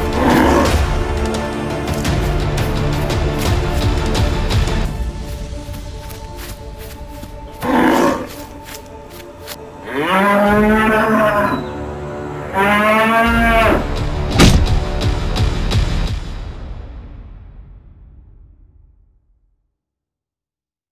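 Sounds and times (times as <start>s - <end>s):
bull mooing: 0.0s - 0.9s, 7.6s - 8.4s, 9.8s - 11.7s, 12.4s - 13.9s
background music: 0.0s - 18.8s
sharp hit: 14.3s - 15.2s.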